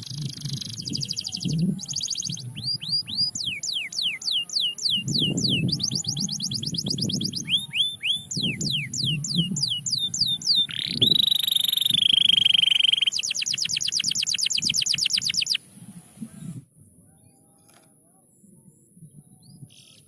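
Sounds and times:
canary singing trills: 0:00.0 - 0:15.6.

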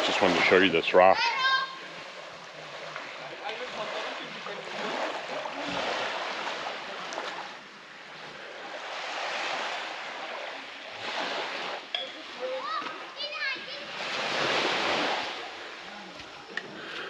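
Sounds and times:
small waves washing on sand: 0:00.0 - 0:17.0.

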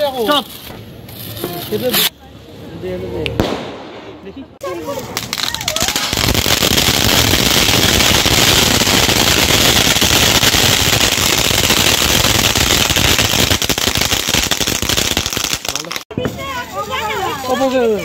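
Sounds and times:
firework crackling: 0:03.4 - 0:18.0
firework fountain hissing: 0:04.7 - 0:17.7.

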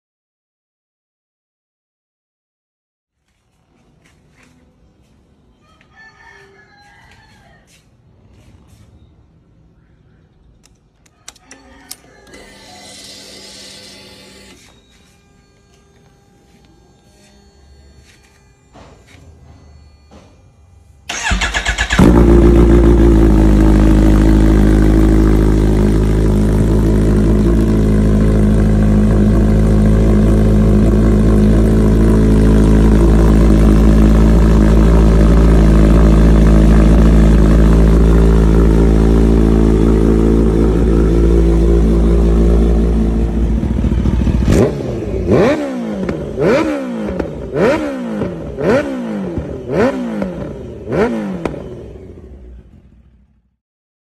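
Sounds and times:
motorcycle engine idling and revving: 0:07.1 - 0:53.6.

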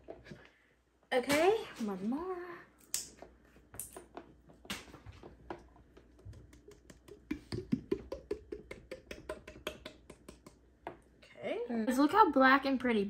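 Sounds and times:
slime squelching when stirred: 0:05.2 - 0:10.7.

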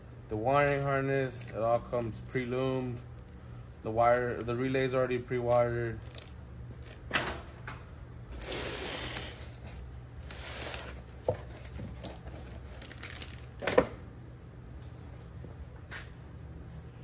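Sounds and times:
low steady hum: 0:00.0 - 0:17.0
cardboard boxes rustling and sliding: 0:08.4 - 0:13.0.

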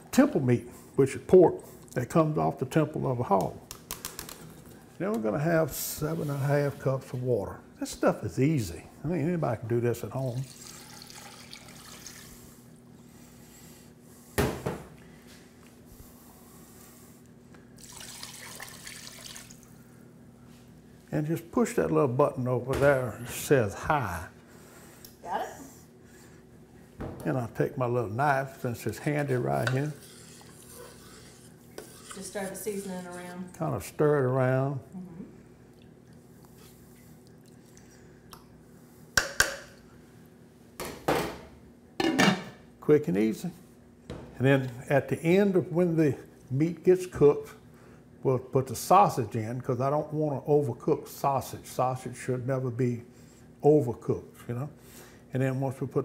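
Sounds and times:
water pouring and splashing: 0:10.4 - 0:12.4, 0:17.8 - 0:19.6
wet stirring: 0:28.5 - 0:33.4.

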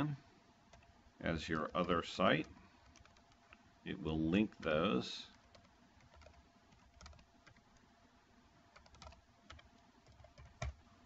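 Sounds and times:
keyboard keystrokes: 0:04.6 - 0:07.8, 0:08.8 - 0:10.8.

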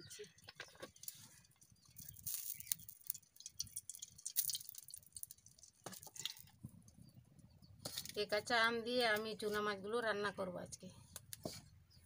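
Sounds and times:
oil sizzling and crackling: 0:00.9 - 0:06.6.

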